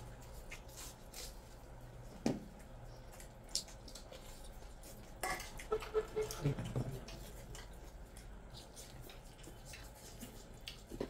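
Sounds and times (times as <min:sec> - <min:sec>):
food squishing between fingers: 0:00.0 - 0:11.0
wet chewing: 0:00.0 - 0:11.0
lip smacks: 0:02.6 - 0:04.8.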